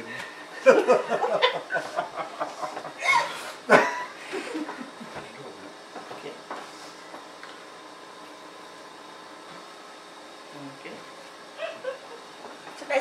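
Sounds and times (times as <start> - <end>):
people laughing: 0.6 - 4.7.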